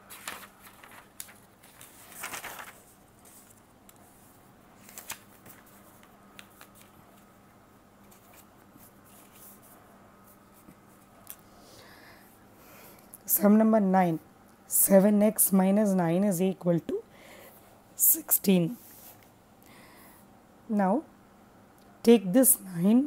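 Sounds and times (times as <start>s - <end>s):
paper sheet rustling: 0.0s - 7.3s, 8.0s - 11.4s.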